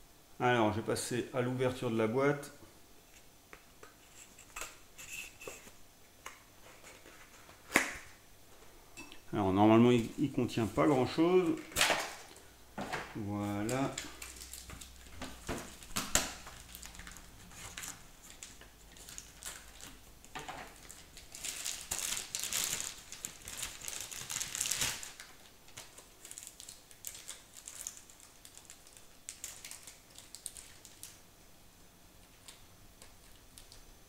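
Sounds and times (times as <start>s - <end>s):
packaging crinkling: 13.4s - 31.2s.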